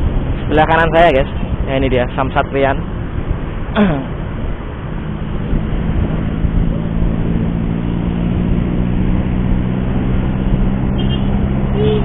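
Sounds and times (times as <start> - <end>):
motorcycle engine drone: 0.0 - 12.0
road and wind noise: 0.0 - 12.0.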